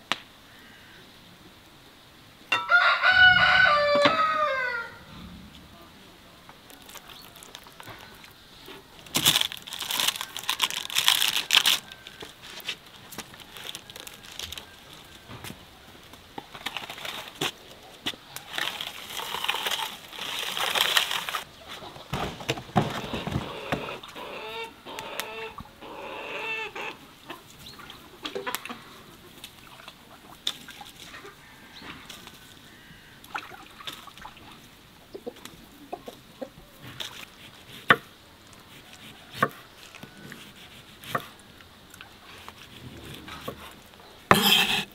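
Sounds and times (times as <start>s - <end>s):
chickens clucking: 21.5s - 30.4s, 34.9s - 37.0s.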